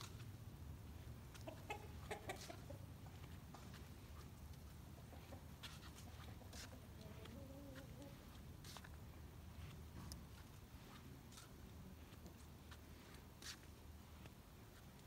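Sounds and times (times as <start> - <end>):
hens clucking: 1.0 - 8.6.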